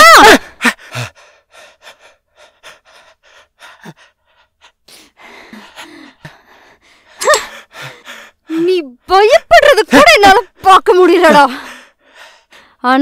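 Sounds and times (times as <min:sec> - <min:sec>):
shaky gasping breaths: 0:00.7 - 0:08.5.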